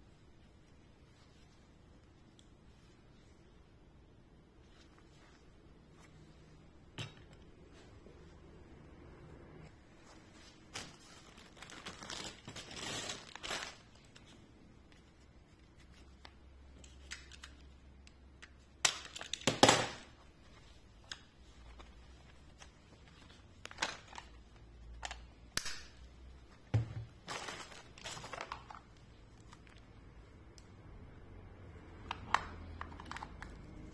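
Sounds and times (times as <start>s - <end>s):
plastic packaging crinkling: 10.5s - 14.3s, 27.2s - 29.9s.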